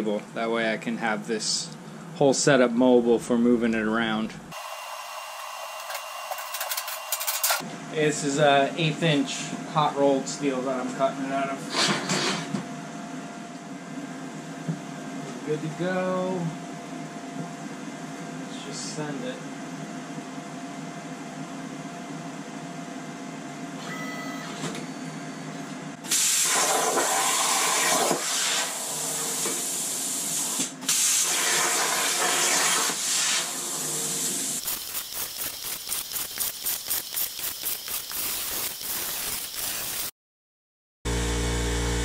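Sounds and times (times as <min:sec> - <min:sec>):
plasma torch hissing: 0:26.1 - 0:40.1.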